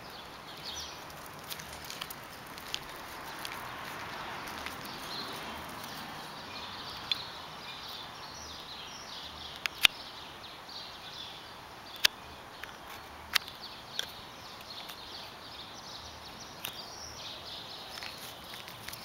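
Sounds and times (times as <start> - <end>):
faint bird chirping: 0.0 - 19.0
sharp clicks: 9.5 - 10.0.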